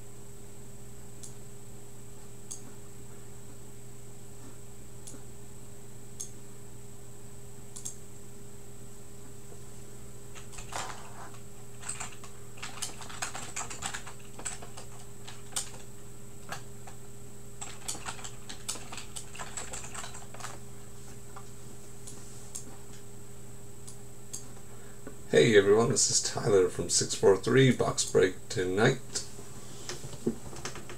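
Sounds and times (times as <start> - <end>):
steady electrical hum: 0.0 - 30.9
keyboard typing clicks: 7.7 - 8.0, 17.6 - 20.6.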